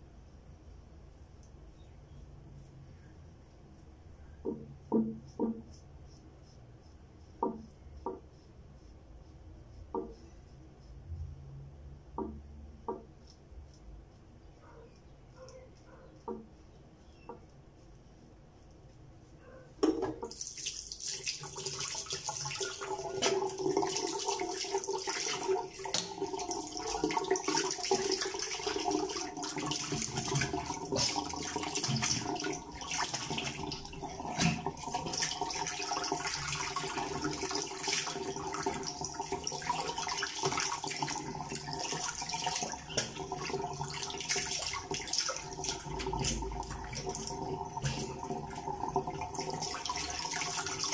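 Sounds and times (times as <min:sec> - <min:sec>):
tap water running into sink: 0:19.8 - 0:50.9
water splashing: 0:20.3 - 0:50.9.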